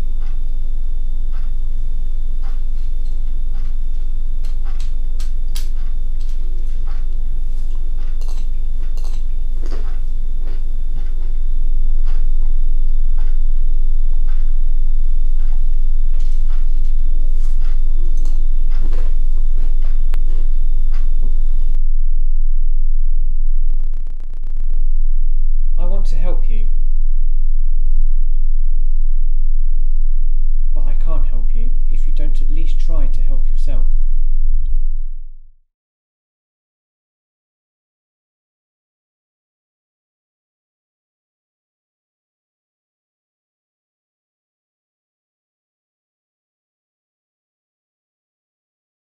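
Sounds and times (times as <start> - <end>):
rapid buzz: 0.0 - 35.3
low steady drone: 0.0 - 35.6.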